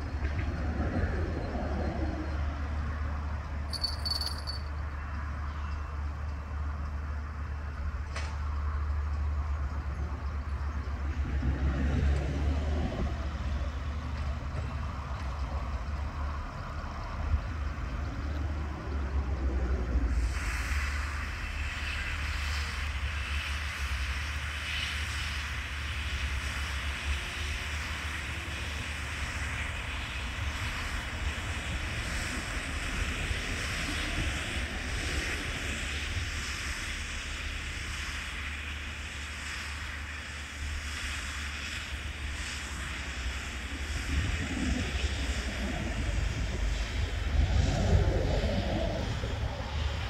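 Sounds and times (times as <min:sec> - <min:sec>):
distant tractor and baler droning: 0:00.0 - 0:50.0
wind rumbling on microphone: 0:25.1 - 0:50.0.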